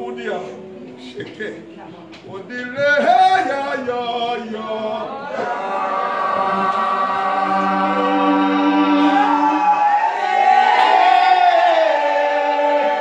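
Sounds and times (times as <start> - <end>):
congregation singing: 0.0 - 13.0.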